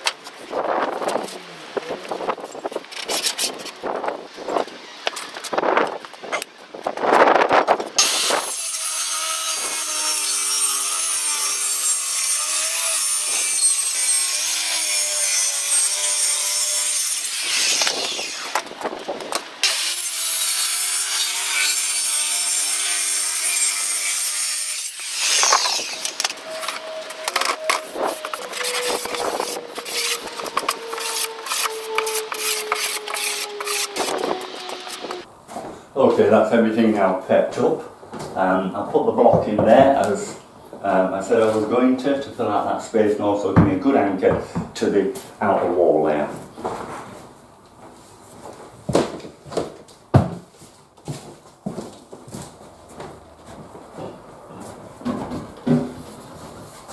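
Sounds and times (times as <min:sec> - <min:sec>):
circular saw cutting plywood: 0:08.0 - 0:18.7, 0:19.6 - 0:35.3.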